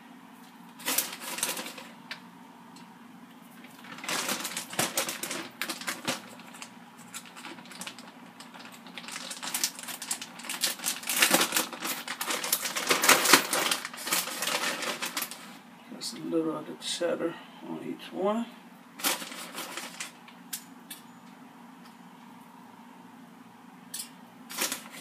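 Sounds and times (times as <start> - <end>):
plastic bag crinkling: 0.8 - 2.2, 3.6 - 15.6, 19.0 - 20.3, 24.5 - 25.0.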